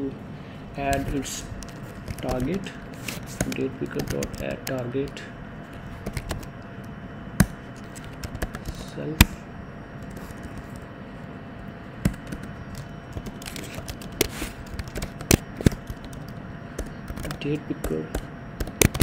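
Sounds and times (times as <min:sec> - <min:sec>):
keyboard keystrokes: 0:03.3 - 0:04.8, 0:12.0 - 0:19.0.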